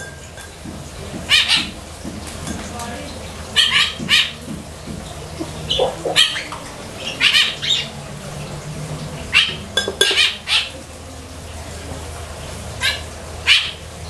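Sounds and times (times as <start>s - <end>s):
rooster squawking clucks: 3.5s - 8.0s.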